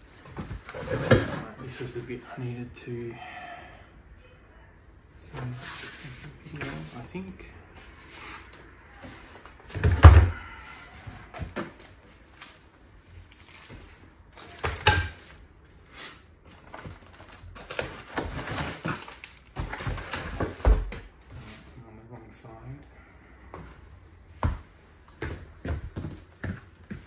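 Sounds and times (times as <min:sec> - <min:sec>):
plastic wrap rustling: 0:12.2 - 0:15.4, 0:16.5 - 0:20.9.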